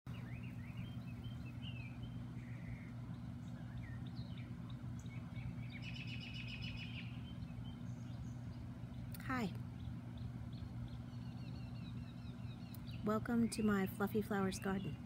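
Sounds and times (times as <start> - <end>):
songbirds chirping: 0.1 - 15.0
steady low hum: 0.1 - 15.0
fast bird trill: 0.2 - 9.1.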